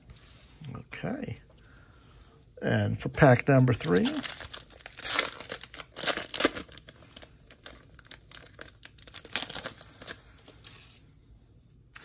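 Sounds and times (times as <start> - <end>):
foil wrapper tearing and crinkling: 3.7 - 10.2.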